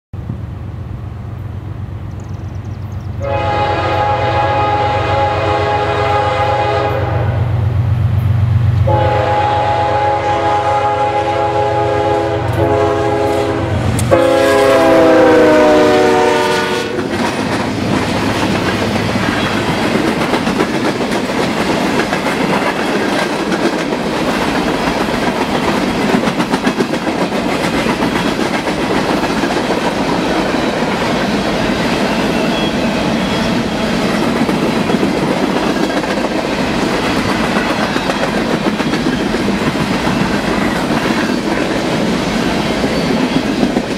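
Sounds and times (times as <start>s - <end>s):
locomotive engines rumbling: 0.2s - 43.9s
locomotive air horn blasts: 3.2s - 7.6s, 8.8s - 17.1s
train wheels clacking on rails: 12.5s - 43.9s.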